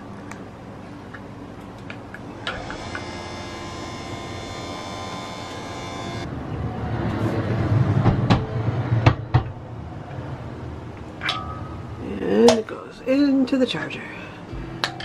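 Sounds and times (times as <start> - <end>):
lift motor whining: 2.4 - 6.3.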